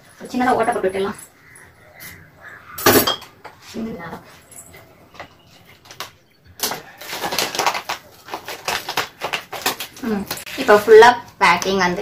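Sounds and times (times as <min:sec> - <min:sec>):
packet crinkling: 0:05.8 - 0:10.8.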